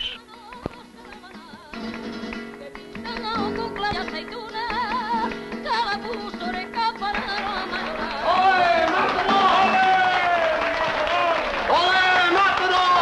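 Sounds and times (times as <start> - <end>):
strummed guitar: 0.0 - 10.5.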